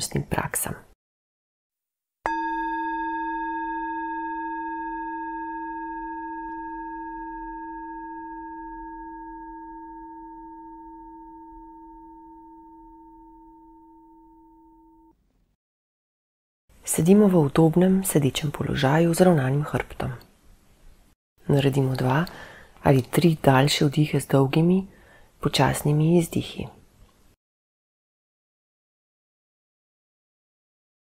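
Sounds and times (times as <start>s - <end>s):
meditation bell ringing: 2.3s - 15.1s.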